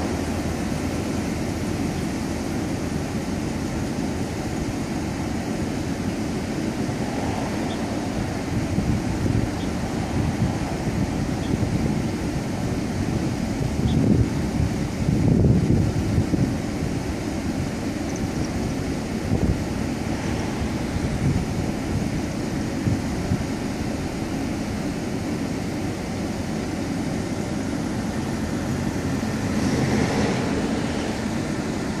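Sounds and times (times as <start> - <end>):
steady low rumble: 0.0 - 32.0
wind buffeting microphone: 6.6 - 25.9.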